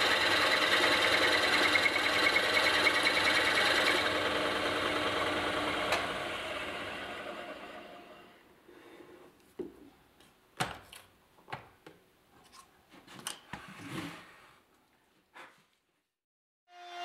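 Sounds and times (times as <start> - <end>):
drill press motor: 0.0 - 8.3.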